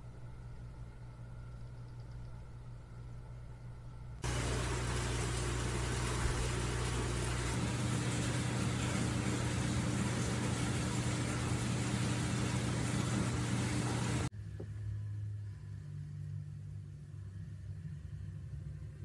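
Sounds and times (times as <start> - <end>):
steady machine hum: 0.0 - 19.0
higher hum: 4.2 - 14.3.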